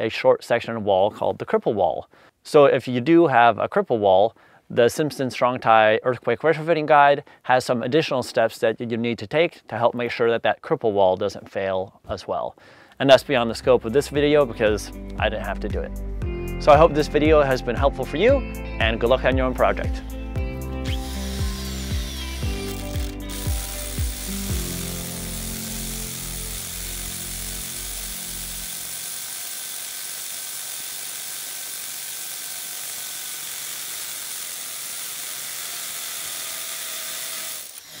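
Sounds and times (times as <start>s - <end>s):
music with a beat: 14.2s - 24.9s
drill hammering into concrete: 20.8s - 38.0s.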